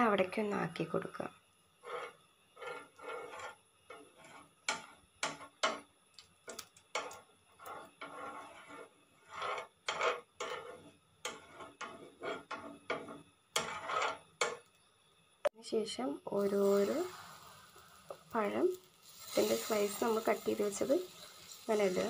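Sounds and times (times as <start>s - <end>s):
metal spoon scraping a griddle: 1.8s - 14.7s, 19.0s - 22.0s.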